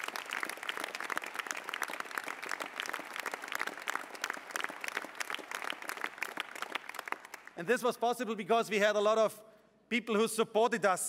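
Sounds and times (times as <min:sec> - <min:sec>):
large audience applauding: 0:00.0 - 0:07.6.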